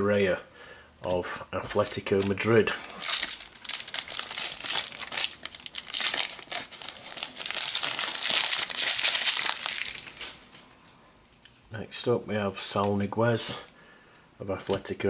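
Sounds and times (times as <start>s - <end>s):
foil wrapper tearing and crinkling: 1.8s - 10.6s.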